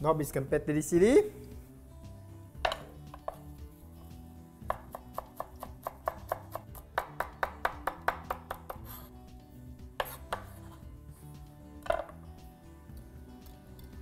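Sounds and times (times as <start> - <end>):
knife chopping on wooden board: 4.6 - 8.9, 10.0 - 10.6.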